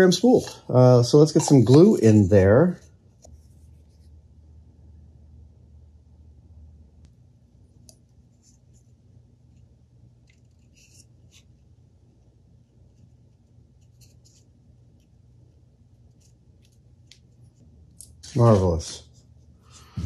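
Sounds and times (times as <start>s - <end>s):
scratching and rustling of hand work: 0.0s - 4.2s, 8.2s - 11.7s, 12.7s - 15.2s, 15.9s - 20.0s
low steady hum: 0.0s - 20.0s.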